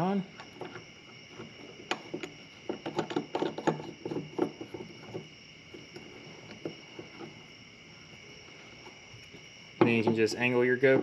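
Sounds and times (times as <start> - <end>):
crickets trilling: 0.0 - 11.0
plastic clicking and scraping: 0.4 - 5.3.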